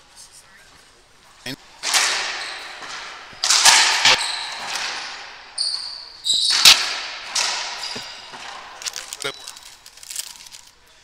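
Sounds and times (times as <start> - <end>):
ball smacking racquets and walls: 0.7 - 10.5
shoe squeak on hardwood floor: 2.3 - 3.0, 4.0 - 4.8, 5.4 - 6.9, 7.7 - 10.5.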